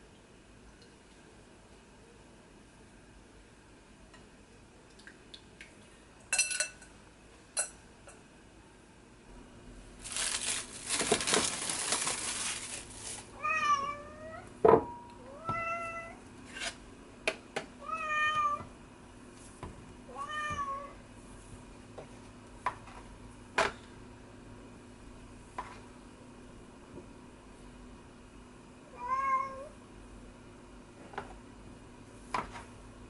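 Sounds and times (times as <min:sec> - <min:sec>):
cling film crinkling: 0:10.0 - 0:13.4
cat meowing: 0:13.4 - 0:14.4, 0:15.3 - 0:16.2, 0:17.8 - 0:18.6, 0:20.1 - 0:21.0, 0:28.9 - 0:29.7.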